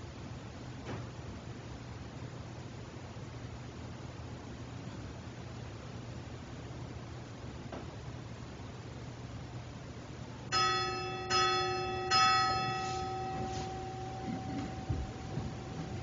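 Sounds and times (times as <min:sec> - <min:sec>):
bell ringing: 0:10.5 - 0:16.0.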